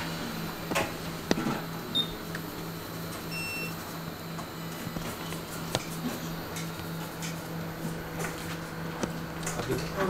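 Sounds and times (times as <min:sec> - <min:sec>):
short electronic beeps: 0:03.3 - 0:03.8.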